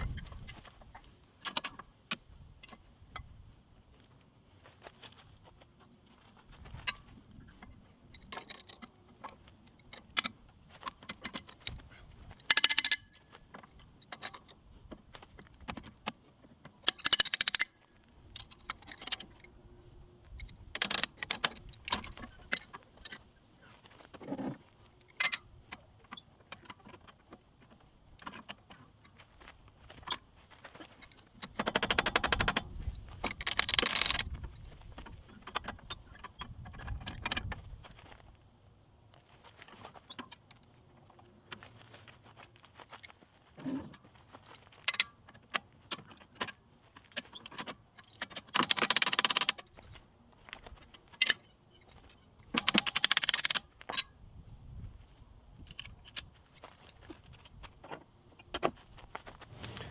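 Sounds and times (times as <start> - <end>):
metal parts clinking: 12.4 - 13.2, 16.8 - 17.7, 31.0 - 34.3, 51.1 - 54.1.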